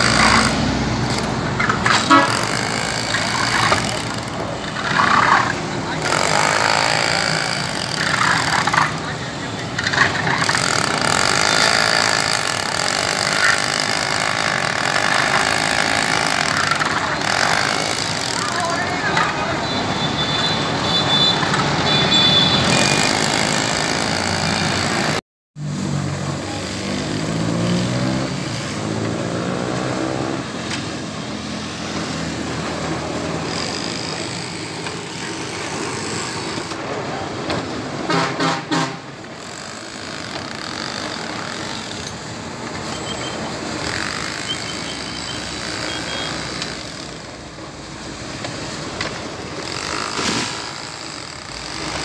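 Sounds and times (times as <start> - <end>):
road traffic: 0.0 - 52.0
horn toots: 1.9 - 2.6
vehicle engine revving: 25.6 - 30.6.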